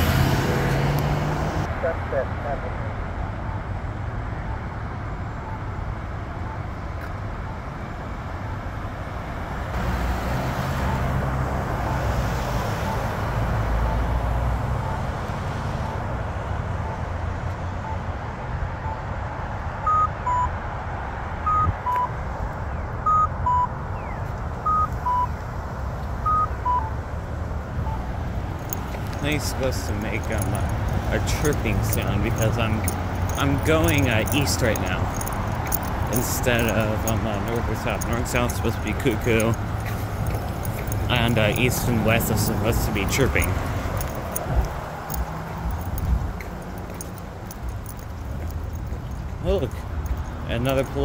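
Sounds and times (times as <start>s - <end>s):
passing traffic: 0.0s - 51.0s
cuckoo walk tone: 27.9s - 51.0s.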